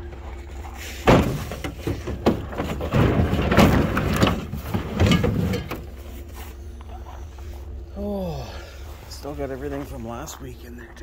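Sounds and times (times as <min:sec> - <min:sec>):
metal appliance knocking and scraping: 0:01.1 - 0:05.9.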